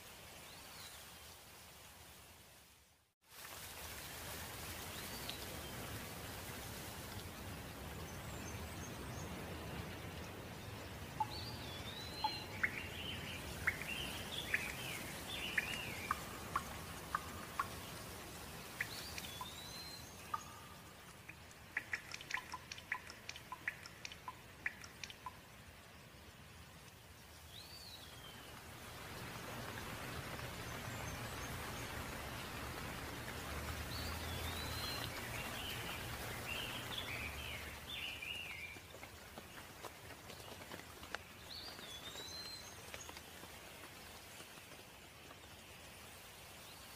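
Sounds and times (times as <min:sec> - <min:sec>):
steady rain: 0:00.0 - 0:46.9
sharp water drips: 0:03.3 - 0:46.9
birds singing and calling: 0:11.2 - 0:18.0, 0:18.7 - 0:25.4.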